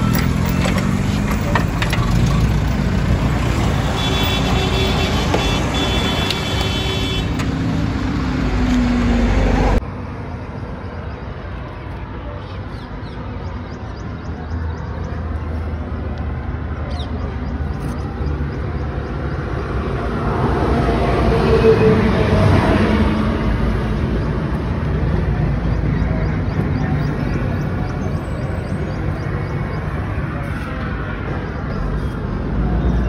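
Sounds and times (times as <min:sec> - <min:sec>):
vehicle engines running: 0:00.0 - 0:33.0
car horn sounding: 0:03.8 - 0:07.4.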